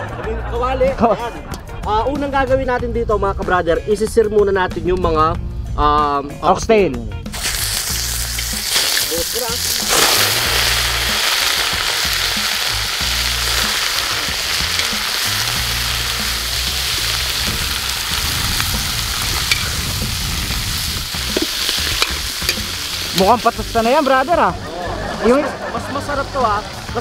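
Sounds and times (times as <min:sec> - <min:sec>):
meat sizzling in hot oil: 0:07.3 - 0:24.5.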